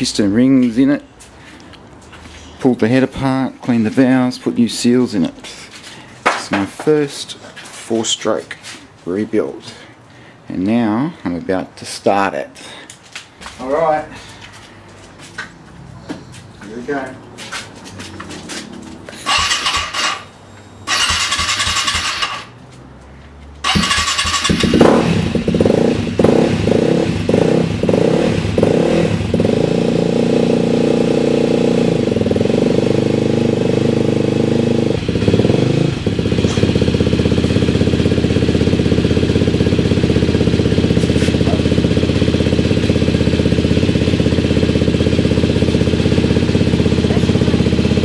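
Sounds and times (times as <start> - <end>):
motorcycle engine starting and idling: 18.8 - 22.9, 23.6 - 48.0.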